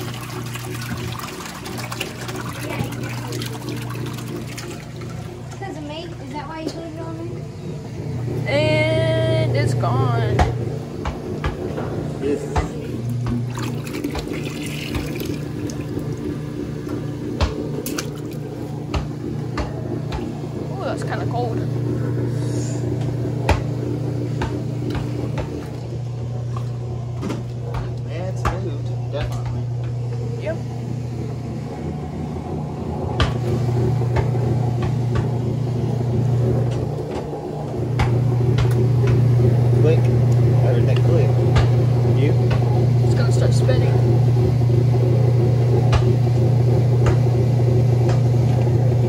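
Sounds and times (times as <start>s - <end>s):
water splashing into plastic tub: 0.0s - 5.6s, 12.8s - 16.3s, 17.4s - 18.6s
washer drain pump humming: 0.0s - 49.0s.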